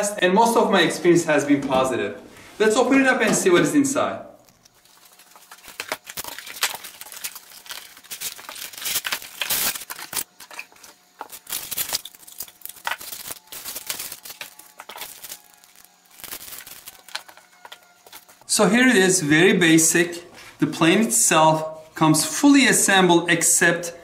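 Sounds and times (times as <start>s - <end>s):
cardboard packaging rustling: 4.4s - 18.4s.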